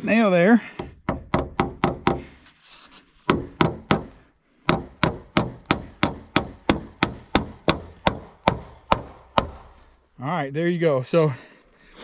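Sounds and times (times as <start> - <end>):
hammer striking nails into metal: 0.8 - 2.3, 3.3 - 9.8.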